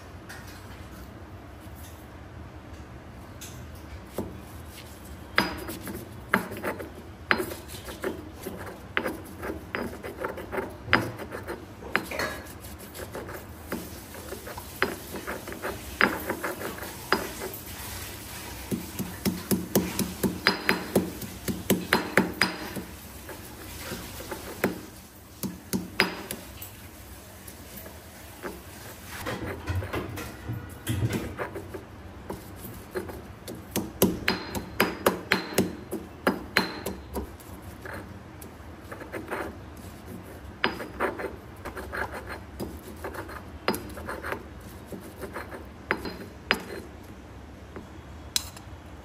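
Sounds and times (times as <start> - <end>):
pestle pounding in stone mortar: 5.3 - 13.9, 18.7 - 23.0, 24.0 - 26.5, 30.9 - 37.4.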